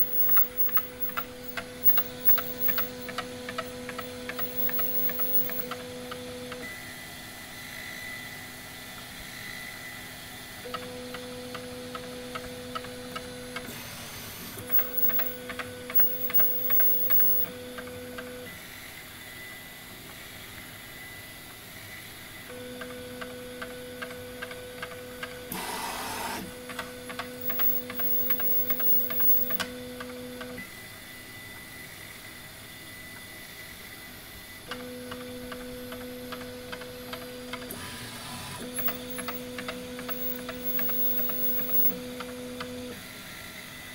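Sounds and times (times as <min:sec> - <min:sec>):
regular ticking clicks: 0:00.0 - 0:05.6, 0:14.7 - 0:15.4, 0:16.0 - 0:17.5, 0:27.4 - 0:29.6, 0:38.8 - 0:39.4, 0:40.1 - 0:41.9.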